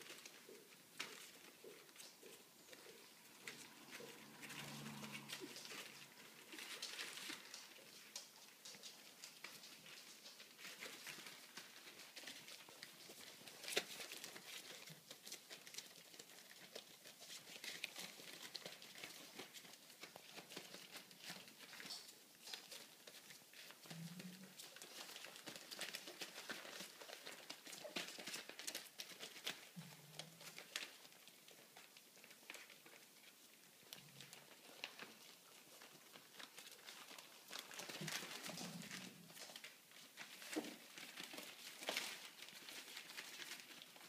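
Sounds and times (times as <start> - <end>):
paper crinkling: 0.0 - 44.0
puppy paws pattering: 0.0 - 44.0.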